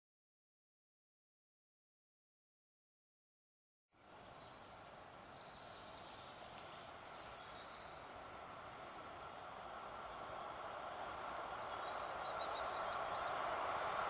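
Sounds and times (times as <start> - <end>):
distant train rumble: 4.1 - 14.0
faint bird chirps: 4.2 - 13.8.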